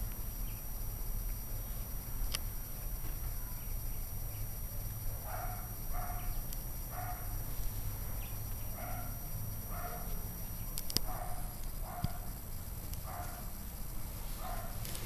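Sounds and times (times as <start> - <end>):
dog barking: 5.2 - 7.4, 8.7 - 10.2, 11.0 - 12.3, 13.0 - 13.5, 14.4 - 14.8
sharp clicks: 10.1 - 12.2.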